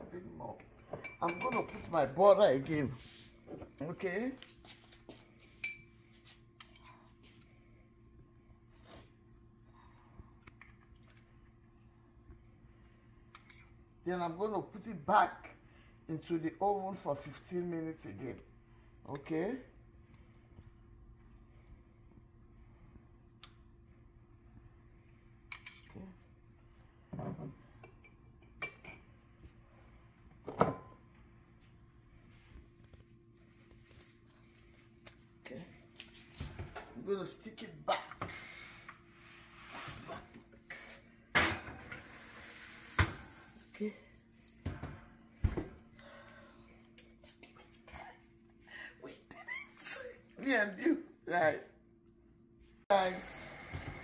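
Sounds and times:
spoon and bowl clinking on metal rack: 0.6 - 2.0.

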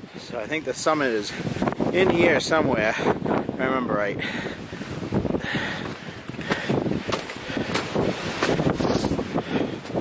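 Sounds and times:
wind gusting across microphone: 0.0 - 10.0
footsteps crunching through snow: 5.8 - 10.0.

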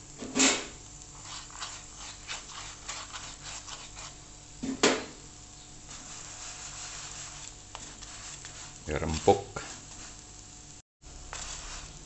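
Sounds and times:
pastry brush rubbing flatbread: 1.1 - 4.3, 5.8 - 10.4, 11.2 - 12.0.

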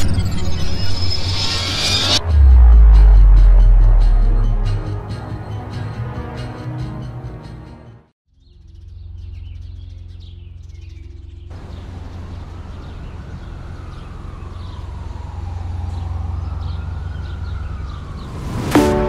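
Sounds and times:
low drone: 0.0 - 5.6
wind-like whoosh with tone: 0.0 - 5.9, 17.6 - 19.0
birds chirping: 8.4 - 18.4.

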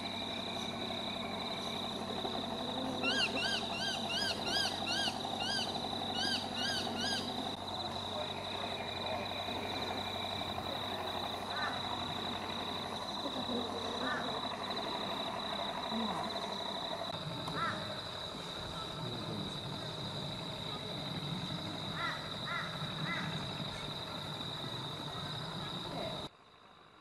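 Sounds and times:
high insect drone: 0.0 - 27.0
bird calling rapid notes: 3.0 - 7.4.

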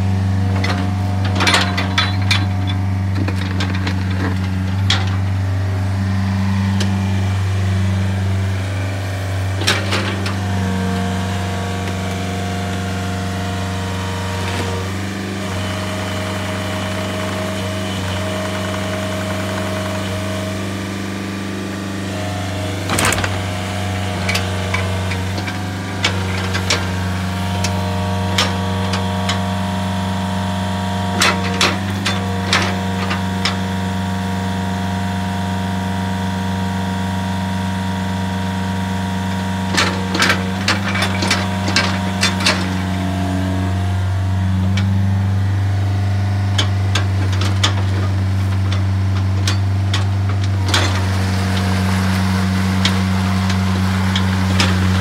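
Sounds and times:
excavator diesel engine running: 0.0 - 55.0.

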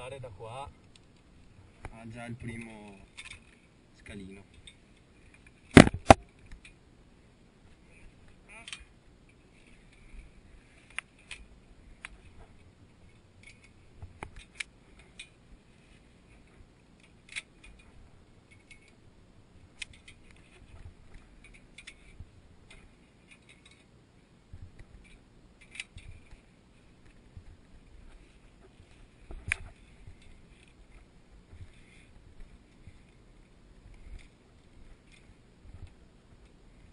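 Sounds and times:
carabiners clinking on steel cable: 21.4 - 23.9, 25.0 - 26.4.

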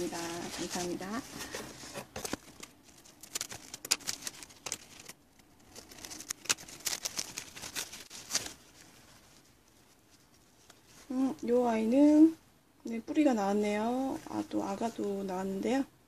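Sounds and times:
paper towel crackling: 0.0 - 12.4.

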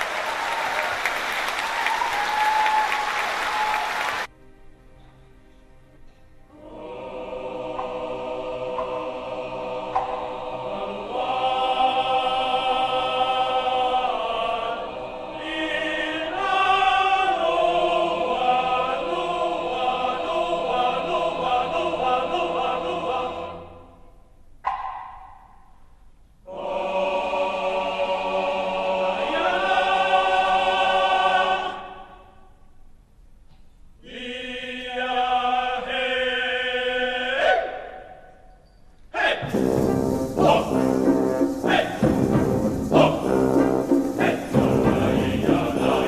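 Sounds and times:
music with sung long notes: 4.3 - 24.3, 39.4 - 46.0.

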